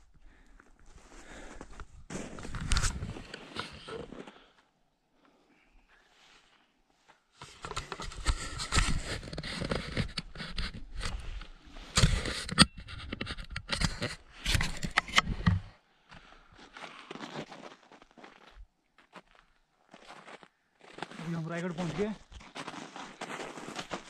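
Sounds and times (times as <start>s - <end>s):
footsteps crunching on snow: 0.8s - 4.4s, 16.6s - 24.0s.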